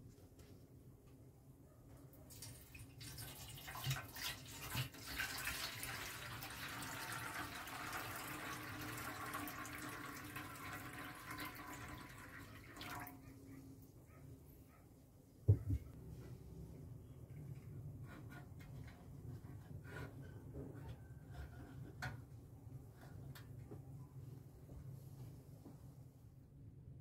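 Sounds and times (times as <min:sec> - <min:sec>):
liquid pouring into metal pan: 0:02.3 - 0:13.2.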